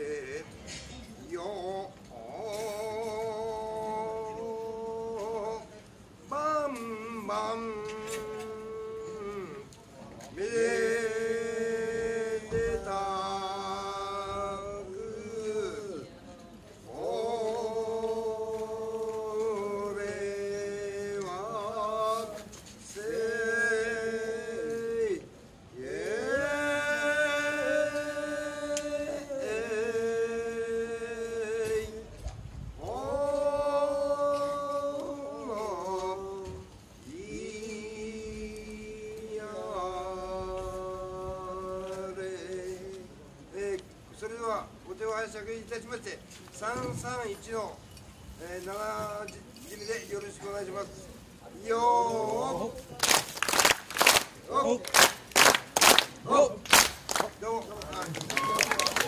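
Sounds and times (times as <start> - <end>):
man chanting: 0.0 - 9.7, 10.3 - 16.1
men chanting held notes: 16.9 - 32.2.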